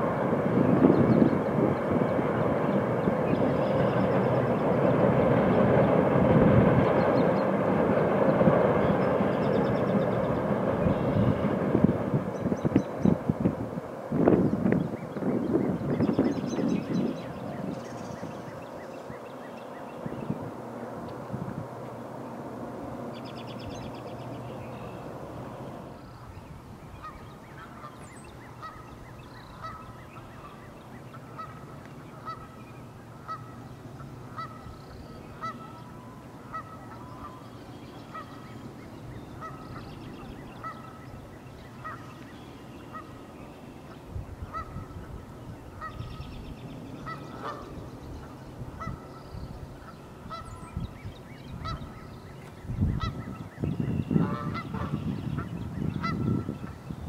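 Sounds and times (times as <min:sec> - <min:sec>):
geese honking: 0:28.6 - 0:29.0, 0:29.6 - 0:32.6, 0:33.2 - 0:34.7, 0:35.3 - 0:38.6, 0:39.3 - 0:39.9, 0:40.5 - 0:41.2, 0:41.8 - 0:42.2, 0:42.8 - 0:43.2, 0:43.9 - 0:45.2, 0:47.0 - 0:49.2, 0:49.8 - 0:50.7, 0:51.6 - 0:52.1, 0:54.1 - 0:56.8.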